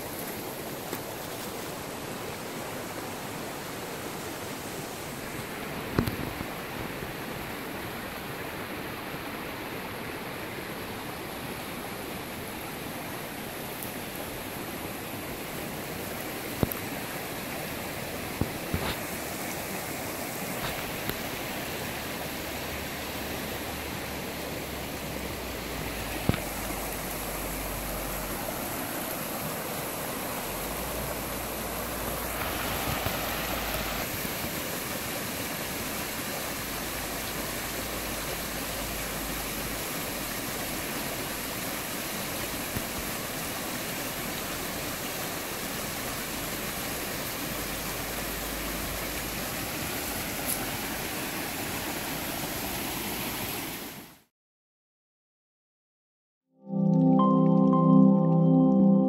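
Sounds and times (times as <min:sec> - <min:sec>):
stream water rushing over stones: 0:00.0 - 0:54.3.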